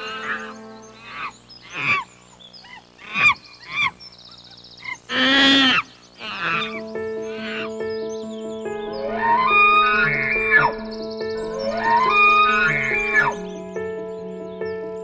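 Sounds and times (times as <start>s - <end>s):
soft background music: 0.0s - 1.6s, 6.2s - 15.0s
animal calls: 0.0s - 7.8s, 9.0s - 10.8s, 11.5s - 13.5s.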